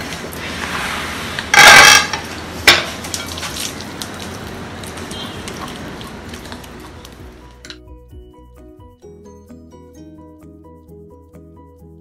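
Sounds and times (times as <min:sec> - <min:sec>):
hands squishing wet paste: 0:02.9 - 0:07.5.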